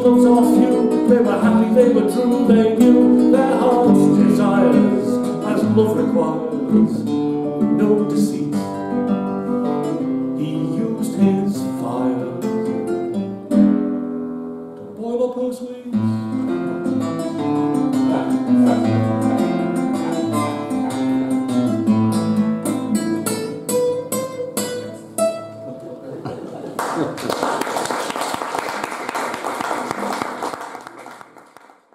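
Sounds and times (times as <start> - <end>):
classical guitar playing: 0.0 - 15.1, 15.9 - 26.2.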